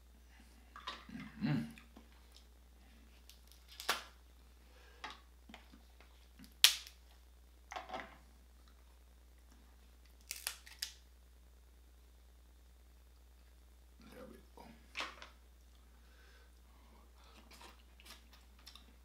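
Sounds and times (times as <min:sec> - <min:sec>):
crab shells cracking: 0:03.3 - 0:04.1, 0:06.4 - 0:07.0, 0:10.1 - 0:11.0.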